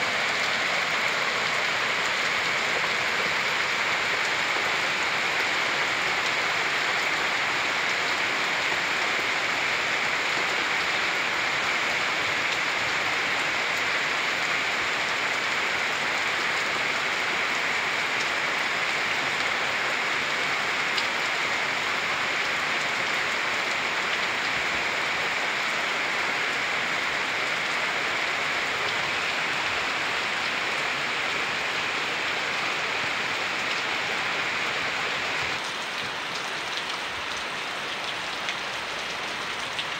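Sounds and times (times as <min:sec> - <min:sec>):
heavy rain hissing: 0:00.0 - 0:39.9.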